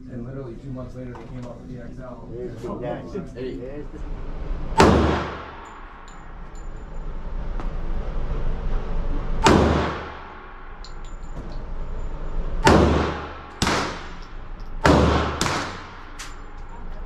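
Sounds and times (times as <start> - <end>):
gunshots echoing indoors: 4.7 - 6.6, 9.3 - 16.8.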